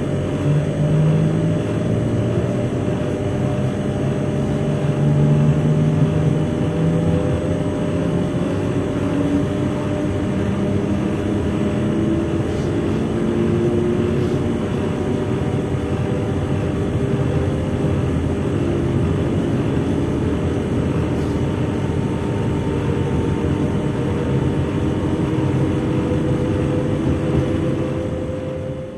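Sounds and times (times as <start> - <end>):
electric train hum and whir: 0.0 - 28.9.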